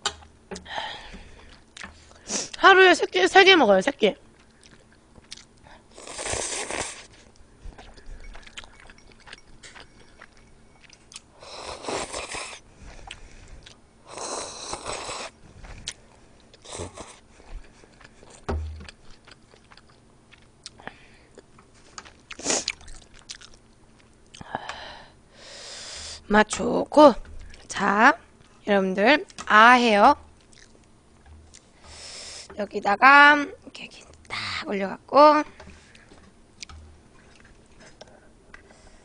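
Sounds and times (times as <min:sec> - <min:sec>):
chewing: 0:04.3 - 0:24.5, 0:30.4 - 0:30.9, 0:35.9 - 0:38.8
woman slurping noodles: 0:06.0 - 0:07.1, 0:11.4 - 0:12.6.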